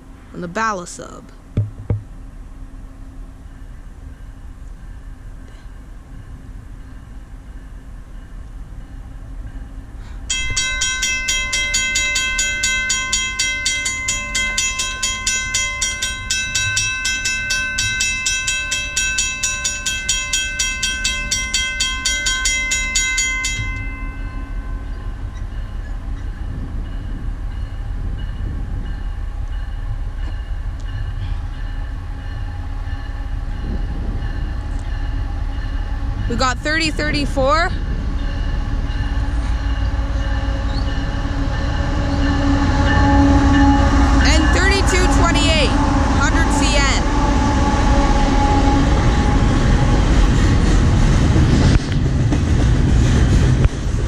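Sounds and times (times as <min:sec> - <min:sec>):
railroad crossing bell ringing: 0:10.3 - 0:47.1.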